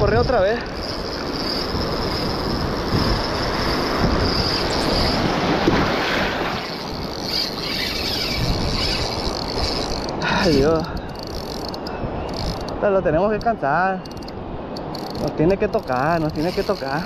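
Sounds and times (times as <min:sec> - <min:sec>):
surf washing: 0:00.0 - 0:17.0
wind buffeting microphone: 0:00.0 - 0:17.0
fishing reel drag buzzing: 0:00.1 - 0:05.6, 0:06.5 - 0:17.0.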